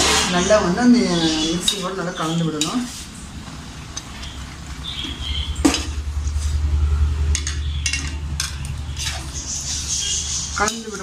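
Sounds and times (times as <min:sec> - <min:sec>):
low steady rumble: 0:03.1 - 0:09.9
ladle scraping pan: 0:07.3 - 0:11.0.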